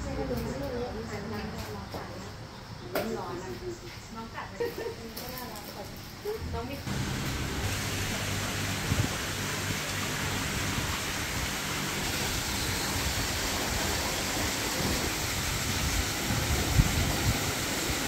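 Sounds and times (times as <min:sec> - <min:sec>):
waterfall rushing into pond: 0:06.9 - 0:18.0.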